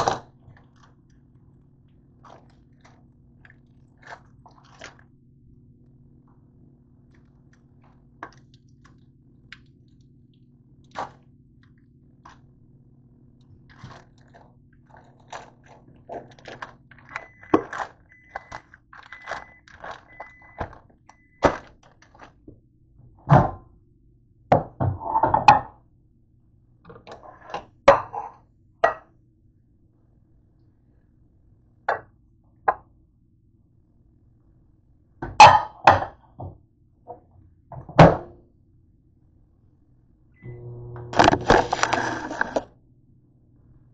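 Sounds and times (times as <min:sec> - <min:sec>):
microwave oven humming: 0:00.0 - 0:24.8, 0:37.6 - 0:43.9
microwave beeps: 0:17.0 - 0:21.6, 0:40.4 - 0:42.2.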